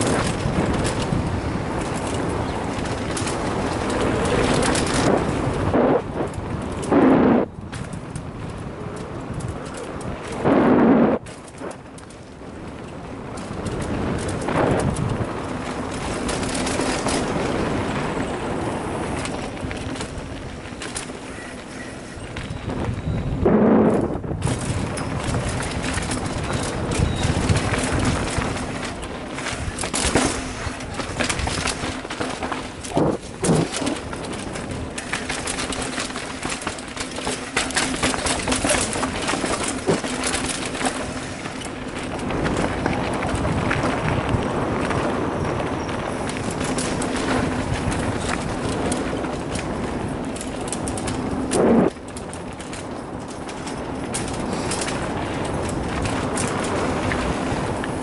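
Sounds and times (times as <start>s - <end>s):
bike rattling and clicking: 0.0s - 58.0s
tyres crunching on gravel: 0.0s - 58.0s
wind rushing over microphone: 0.0s - 58.0s.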